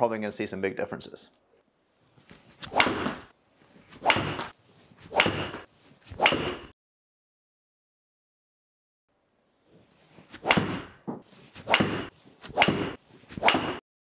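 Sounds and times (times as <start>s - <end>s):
golf club swishing: 1.9s - 6.7s, 9.5s - 13.8s
golf club striking ball: 2.7s - 3.2s.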